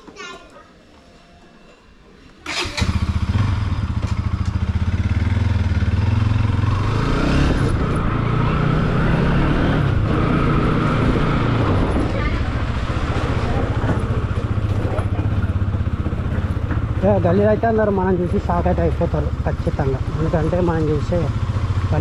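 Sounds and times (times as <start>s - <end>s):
motorcycle engine puttering: 2.4s - 8.3s.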